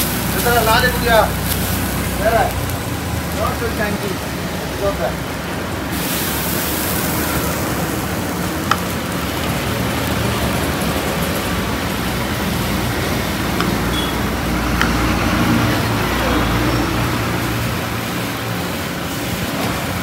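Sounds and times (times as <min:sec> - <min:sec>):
street traffic noise: 0:00.0 - 0:20.0
water hissing on hot griddle: 0:00.0 - 0:20.0.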